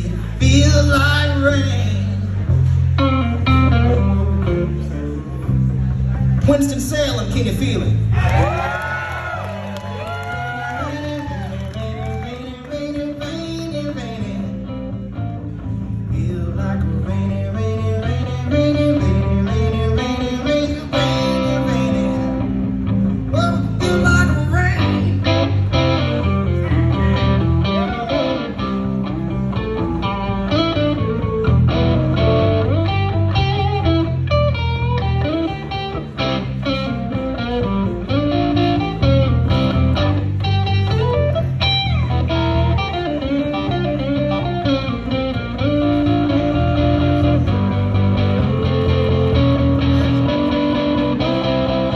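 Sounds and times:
bass guitar: 0.0 - 51.9
electric guitar lead lines: 10.0 - 51.9
drums: 18.4 - 51.9.

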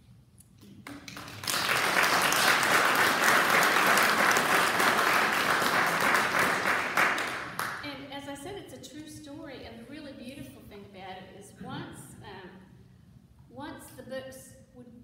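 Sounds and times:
audience applauding: 0.8 - 7.8.

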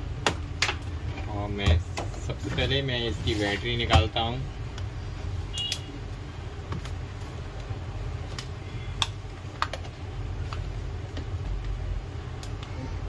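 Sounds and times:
steady low hum: 0.0 - 13.0.

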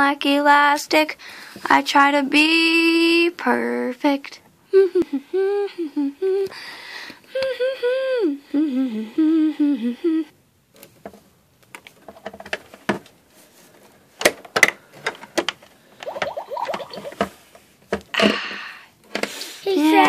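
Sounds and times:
plastic toys clicking and knocking: 11.0 - 13.1, 14.2 - 15.7.

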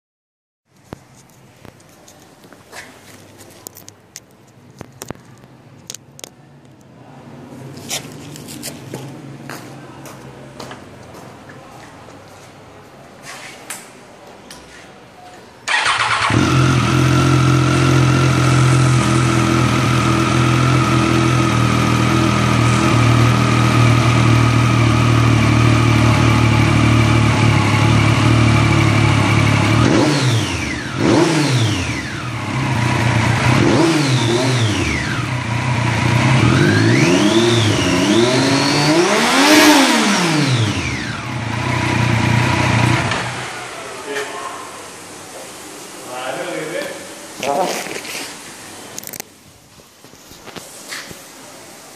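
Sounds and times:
motorcycle engine idling and revving: 15.7 - 43.9.

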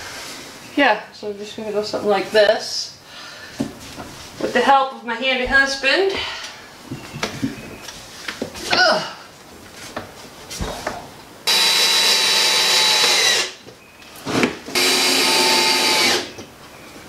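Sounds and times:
power drill driving screws: 11.5 - 13.6, 14.3 - 16.4.

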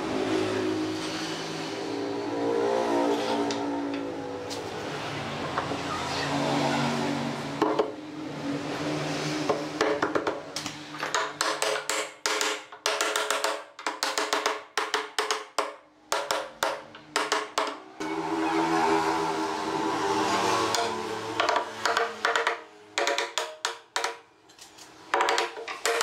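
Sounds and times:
hammer tapping wooden block: 9.5 - 10.4, 11.0 - 17.8, 20.7 - 24.3, 25.1 - 26.0.

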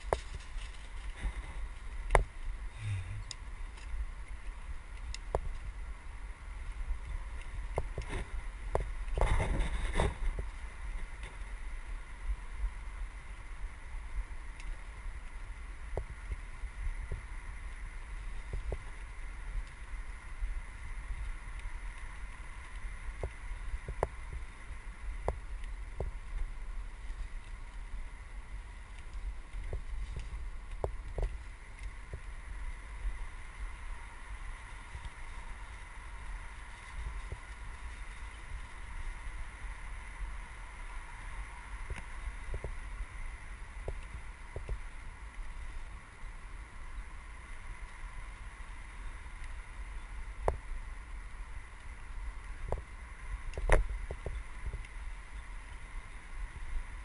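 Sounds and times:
bike rattling: 0.0 - 2.8
bike tyres rumbling on dirt: 0.0 - 57.0
wind on microphone: 0.0 - 57.0.

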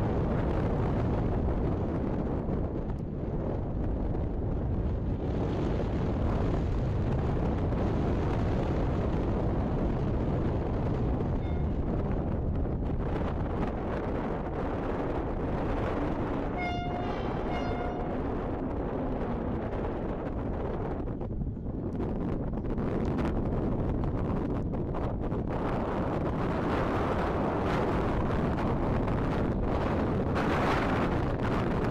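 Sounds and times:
wind buffeting microphone: 0.0 - 31.9
distant train rumble: 3.9 - 21.6
train horn toots: 11.4 - 12.0, 16.5 - 18.5.

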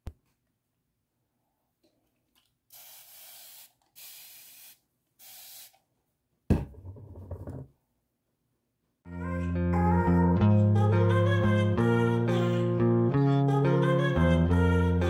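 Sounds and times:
spray bottle hissing: 2.7 - 5.8
thump: 6.5 - 7.7.

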